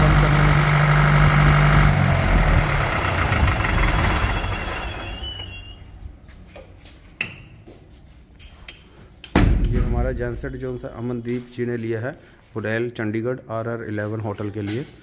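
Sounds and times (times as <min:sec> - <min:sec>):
diesel generator running: 0:00.0 - 0:06.1.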